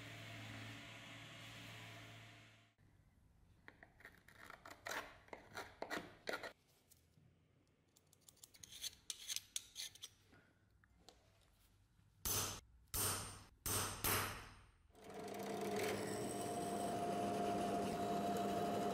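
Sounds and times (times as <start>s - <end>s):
belt sander running: 15.0s - 18.9s.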